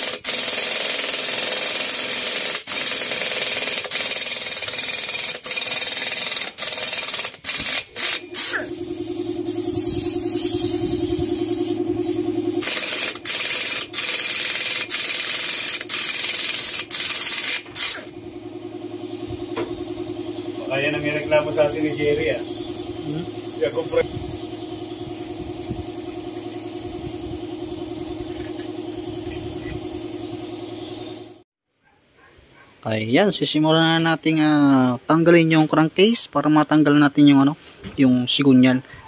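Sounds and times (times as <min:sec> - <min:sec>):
pneumatic impact wrench bursts: 0:00.0 - 0:18.2, 0:28.0 - 0:31.4.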